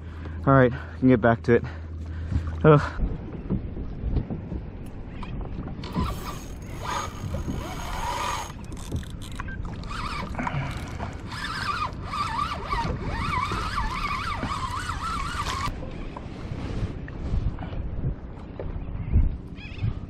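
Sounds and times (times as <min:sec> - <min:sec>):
water noise: 0:00.0 - 0:20.0
wind: 0:00.0 - 0:20.0
fishing reel whining: 0:05.8 - 0:15.7.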